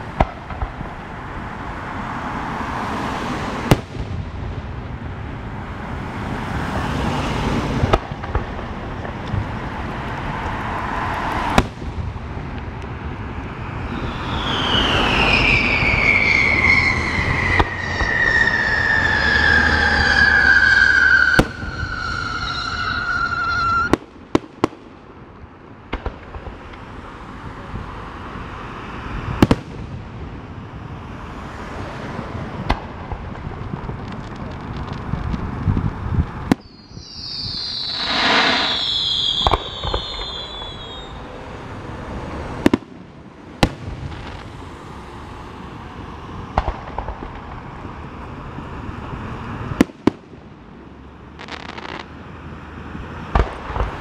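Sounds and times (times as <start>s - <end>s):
falling whistling tone: 13.8s - 23.9s, 36.6s - 41.3s
firework shells launching and bursting: 36.3s - 41.2s
sharp bangs: 36.5s - 41.2s.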